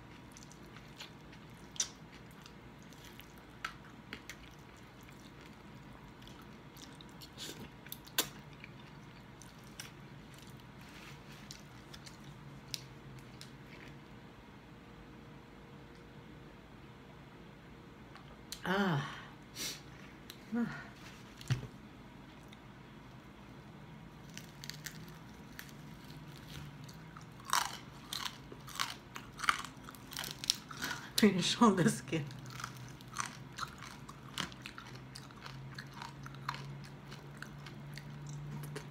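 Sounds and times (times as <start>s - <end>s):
crunching bites of crispy food: 0.0s - 10.7s, 24.1s - 31.1s, 32.3s - 38.9s
chewing spaghetti: 0.0s - 14.0s, 24.3s - 31.1s, 32.2s - 38.9s.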